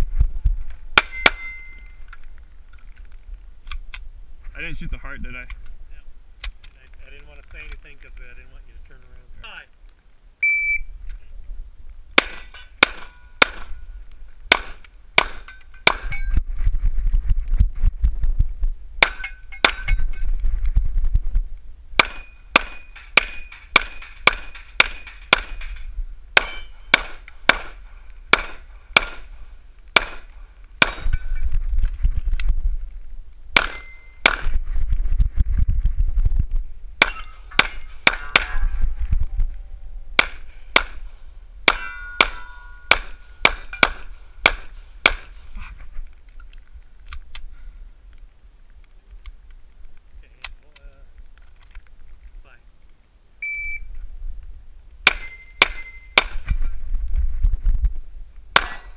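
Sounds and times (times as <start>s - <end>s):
steel target ringing: 1.0s - 2.0s, 12.2s - 13.9s, 22.0s - 29.2s, 33.6s - 34.5s, 37.0s - 38.9s, 41.7s - 45.3s, 55.0s - 56.5s, 58.6s - 58.9s
pistol shots: 12.2s - 13.8s, 14.5s - 16.2s, 22.0s - 25.8s, 26.4s - 29.3s, 30.0s - 31.2s, 33.6s - 34.6s, 37.0s - 38.7s, 40.2s - 41.0s, 41.7s - 45.4s, 58.6s - 58.9s.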